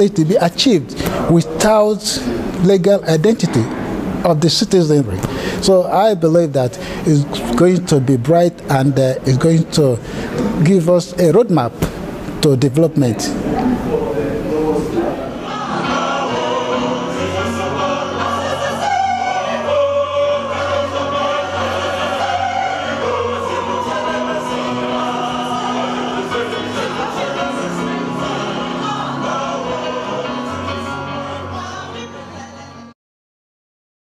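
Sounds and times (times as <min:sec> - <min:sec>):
choir singing held notes: 0:13.5 - 0:32.9.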